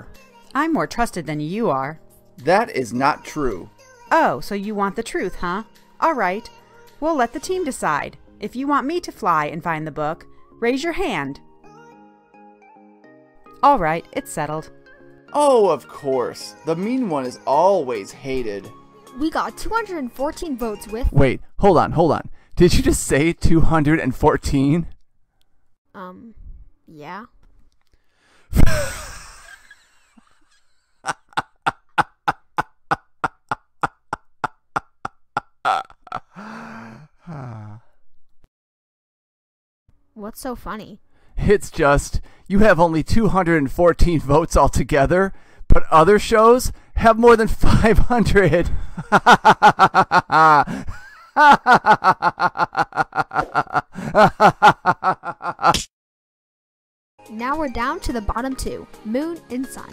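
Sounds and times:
loud burst of breath: 0:28.1 - 0:28.6
cartoon character laughing: 0:28.6 - 0:34.2, 0:35.7 - 0:36.2, 0:49.1 - 0:55.8
cartoon voice laughing: 0:31.1 - 0:34.0.

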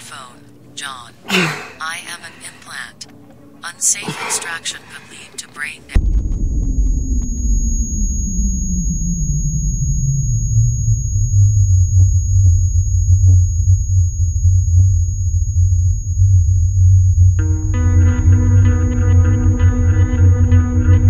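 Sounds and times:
deep synthetic drone: 0:06.0 - 0:14.6
guitar chord: 0:17.4 - 0:21.0.

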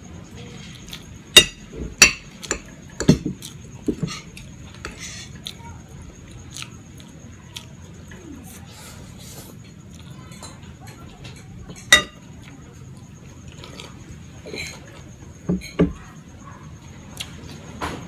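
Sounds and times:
chewing pasta: 0:00.4 - 0:01.3, 0:02.3 - 0:15.3, 0:16.8 - 0:17.7
fork clinking on ceramic plate: 0:11.7 - 0:12.2.

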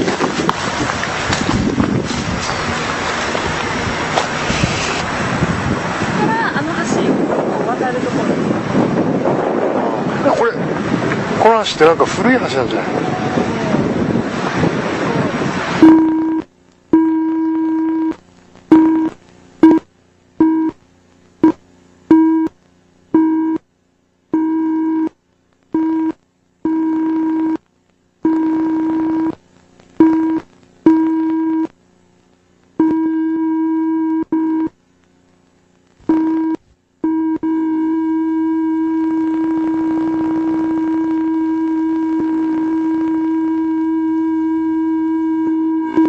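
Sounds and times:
electronic buzzing tone: 0:15.7 - 0:20.8, 0:21.4 - 0:31.8, 0:32.7 - 0:34.8, 0:36.0 - 0:46.0.

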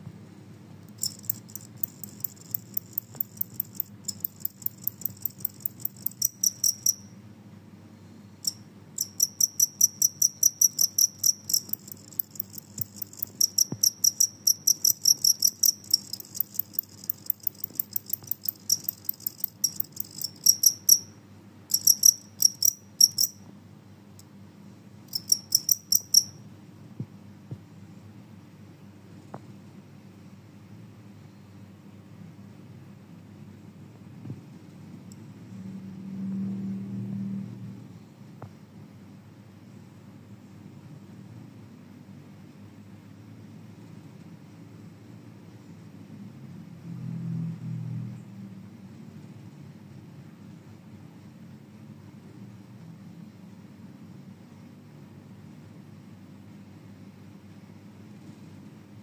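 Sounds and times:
cricket chirping: 0:01.0 - 0:07.2, 0:08.4 - 0:23.5, 0:25.1 - 0:26.4.

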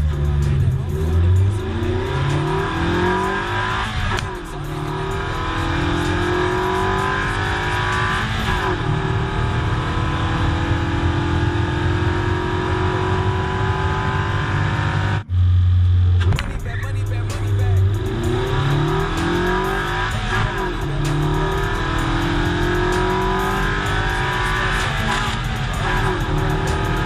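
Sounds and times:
car engine accelerating through gears: 0:00.0 - 0:27.0
tyre and road noise: 0:00.0 - 0:27.0.

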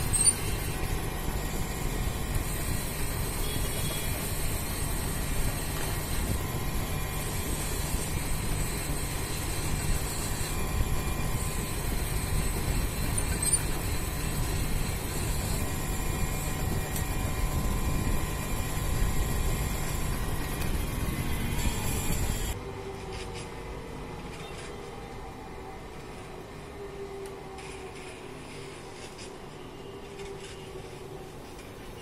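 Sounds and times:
metal lathe humming: 0:00.0 - 0:22.6
high whine of cutting tool: 0:00.0 - 0:23.3.

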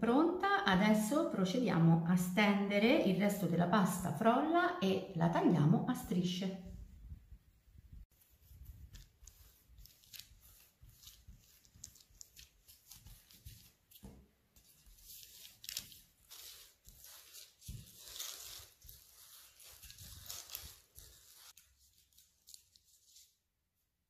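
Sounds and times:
paper rustling and scraping: 0:08.1 - 0:23.4.

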